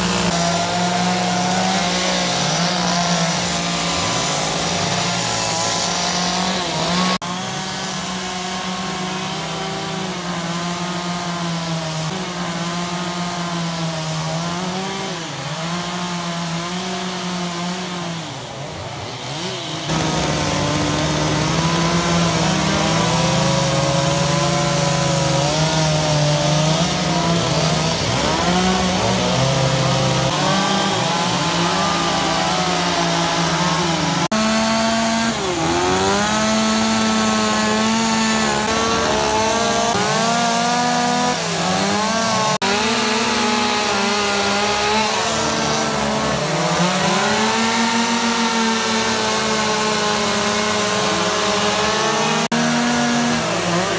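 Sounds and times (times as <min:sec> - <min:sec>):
chainsaw cutting wood: 0:00.0 - 0:53.9.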